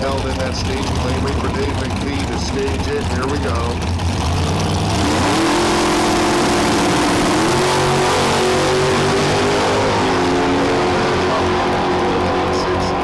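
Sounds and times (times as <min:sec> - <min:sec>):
dragster engine revving: 0:00.0 - 0:13.0.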